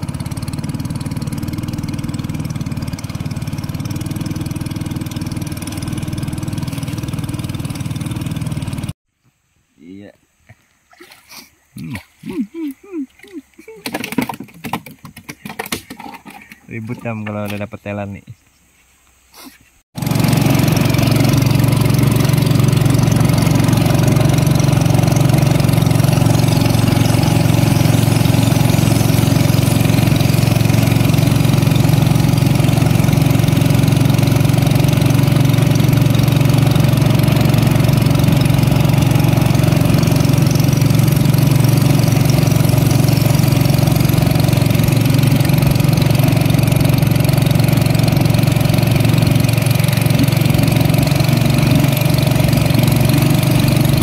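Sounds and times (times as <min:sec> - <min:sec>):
boat engine droning: 0:00.0 - 0:09.0, 0:20.0 - 0:54.0.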